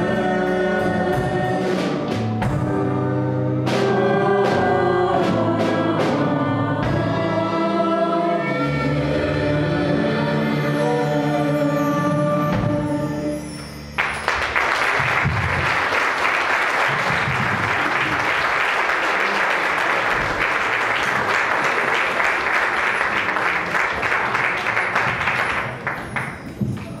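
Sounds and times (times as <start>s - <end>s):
congregation applauding: 14.0s - 27.0s.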